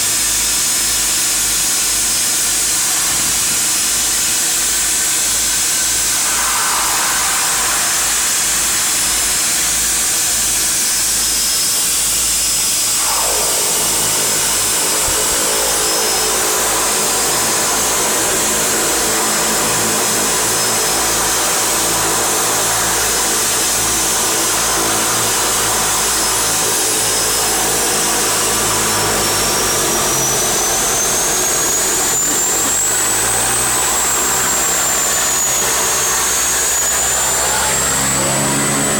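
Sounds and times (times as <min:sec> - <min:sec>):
turboprop engines running: 0:00.0 - 0:11.4, 0:12.8 - 0:38.9
high turbine whine: 0:00.0 - 0:38.9
loud hiss: 0:02.0 - 0:11.4, 0:12.7 - 0:19.0.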